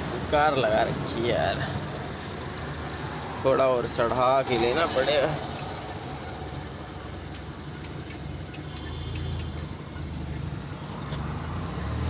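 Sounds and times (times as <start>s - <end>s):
truck engine under load: 0.0s - 12.0s
faint short ticks: 7.3s - 9.6s.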